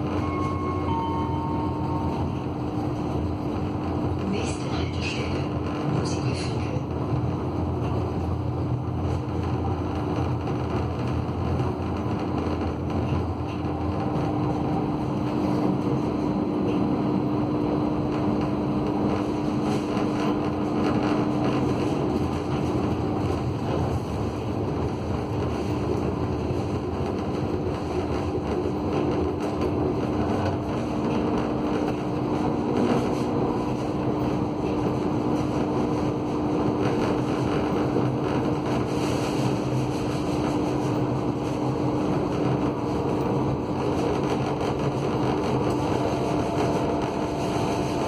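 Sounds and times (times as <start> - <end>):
tram rumbling: 0.0 - 48.0
steady hum: 29.4 - 48.0.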